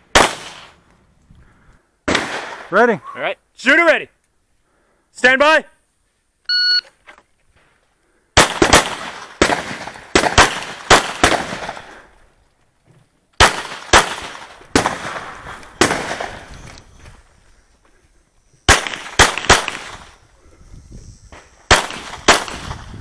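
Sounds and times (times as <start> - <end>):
pistol shots with echo: 0.1 - 0.7, 8.4 - 11.8, 13.4 - 16.4, 18.7 - 20.1, 21.7 - 22.8.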